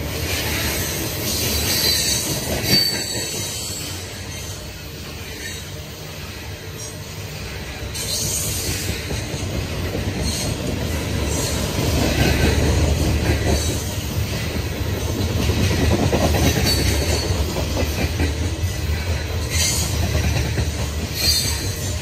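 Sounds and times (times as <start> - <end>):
train wheels rumbling on rails: 0.0 - 22.0
high wheel squeals: 1.6 - 4.5, 21.1 - 21.9.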